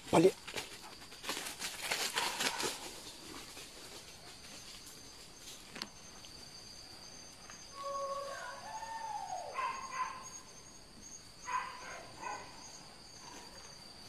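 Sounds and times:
forest insects droning: 0.0 - 14.0
footsteps in dry leaves: 0.4 - 4.5.

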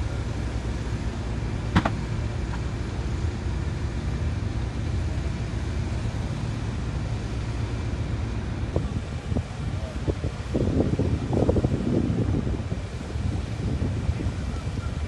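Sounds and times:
boat engines rumbling: 0.0 - 15.0
sharp crack: 1.7 - 2.6.

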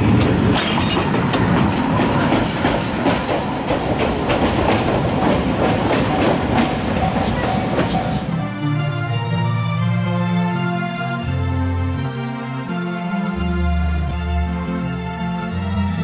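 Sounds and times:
wheels clicking over rail joints: 0.0 - 8.3
steady train rumble: 0.0 - 8.8.

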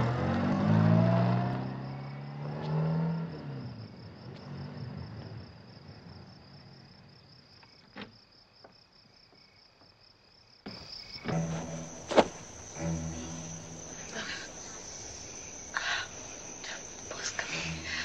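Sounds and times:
car engine: 0.0 - 6.7, 10.7 - 18.0
crickets chirping: 0.0 - 18.0.

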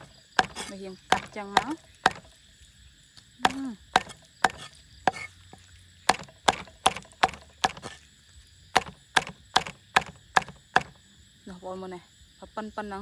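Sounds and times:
cleaver chopping on wooden board: 0.0 - 2.4, 3.4 - 5.3, 6.1 - 8.0, 8.7 - 11.0.

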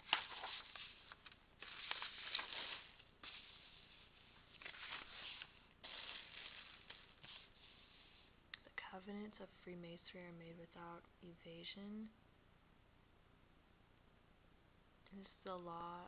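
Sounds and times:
book pages rustling: 0.0 - 8.3.

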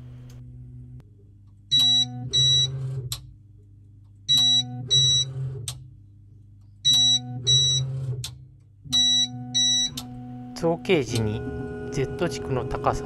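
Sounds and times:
steady low hum: 0.0 - 2.4, 8.5 - 13.0.

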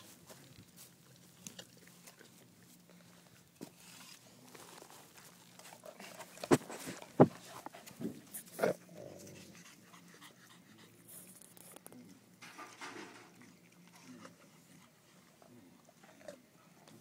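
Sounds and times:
dog crunching apple: 0.6 - 2.7.

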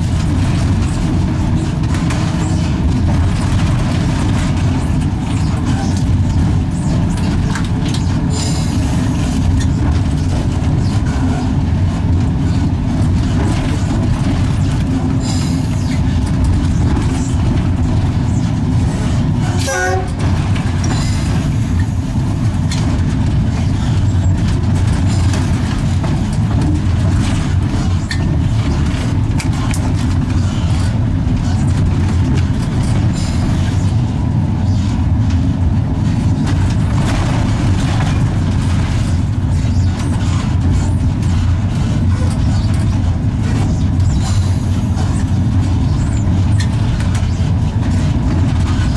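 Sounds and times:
electric locomotive rumble: 0.0 - 48.9.

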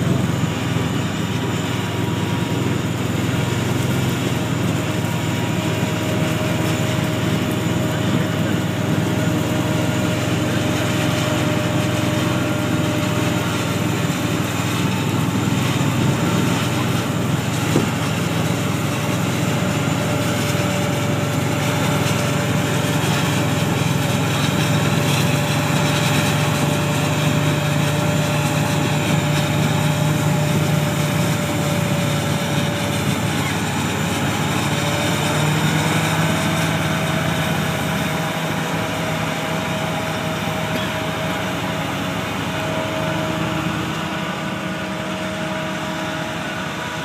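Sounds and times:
combine harvester drone: 0.0 - 47.0
machinery whine: 0.0 - 47.0.

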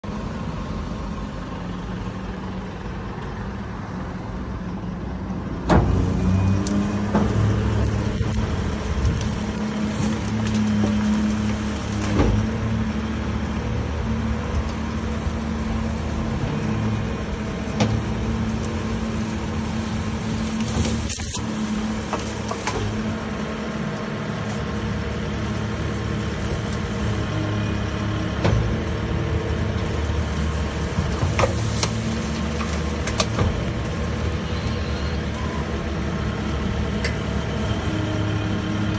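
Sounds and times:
garbage truck mechanism humming: 0.1 - 38.9
branches cracking and snapping: 5.8 - 12.9, 17.7 - 23.2, 29.8 - 34.3.

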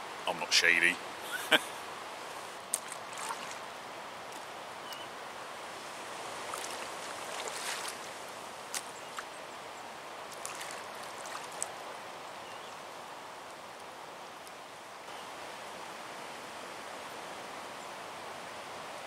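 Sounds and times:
wind: 0.0 - 19.0
water lapping: 2.4 - 3.7, 5.7 - 9.4, 10.3 - 11.8.

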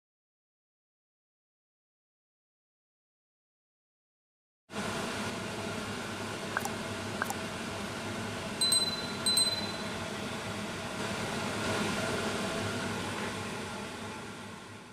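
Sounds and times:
background hum and hiss: 4.8 - 14.9
bright bell-like dings: 8.6 - 10.0.

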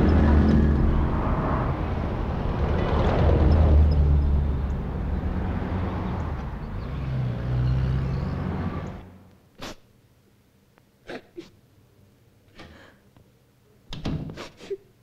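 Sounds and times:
car engines passing: 0.0 - 9.3
person sniffing: 9.6 - 9.9, 14.4 - 14.9.

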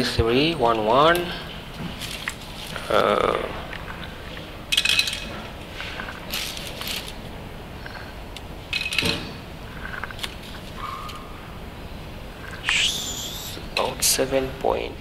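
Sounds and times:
nuts rattling into foil dish: 6.2 - 7.3.

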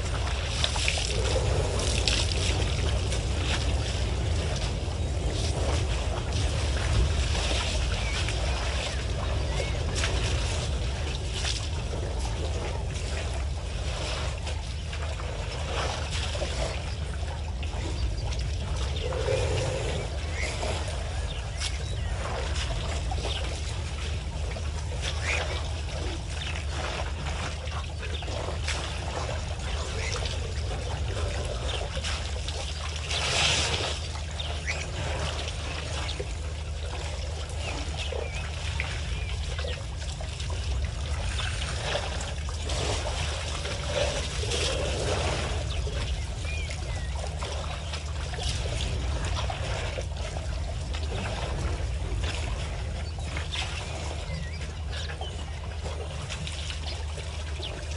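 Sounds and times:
steady low hum: 0.0 - 57.9
water trickling and splashing: 0.0 - 57.9.

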